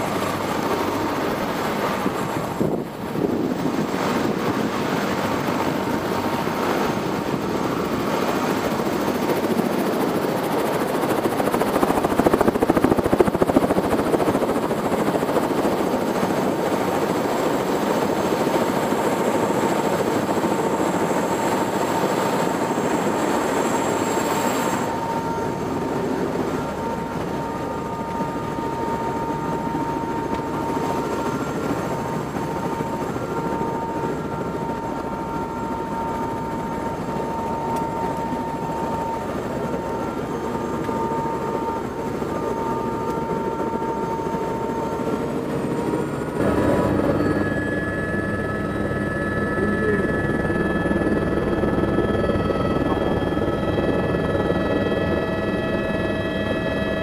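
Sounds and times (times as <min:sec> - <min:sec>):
helicopter idling: 0:00.0 - 0:57.0
thin constant whine: 0:00.0 - 0:57.0.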